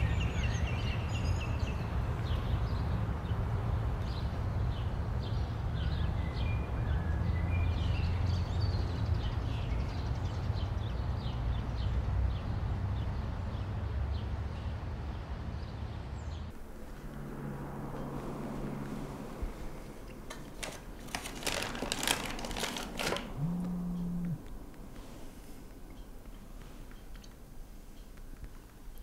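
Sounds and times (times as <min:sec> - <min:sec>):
steady low rumble: 0:16.5 - 0:27.9
small birds chirping: 0:23.3 - 0:29.0.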